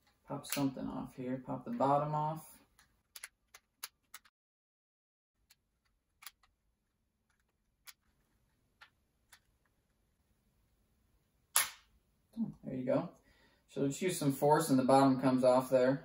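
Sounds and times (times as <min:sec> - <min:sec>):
loud plastic snap: 0:11.5 - 0:11.9.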